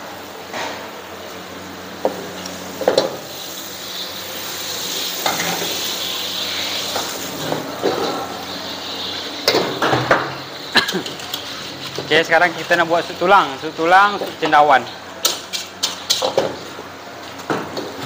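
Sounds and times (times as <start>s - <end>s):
food sizzling in a pan: 1.4s - 14.3s.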